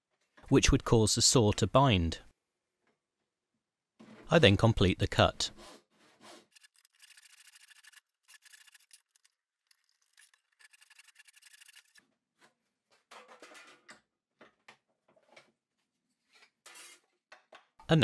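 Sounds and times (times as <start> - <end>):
handsaw cutting wood: 5.6 - 9.1.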